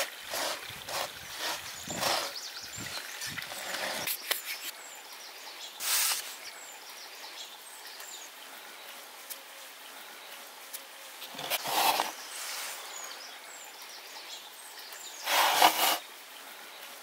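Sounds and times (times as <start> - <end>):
hand raking dry crumbs in dish: 11.4 - 12.8, 15.3 - 16.0.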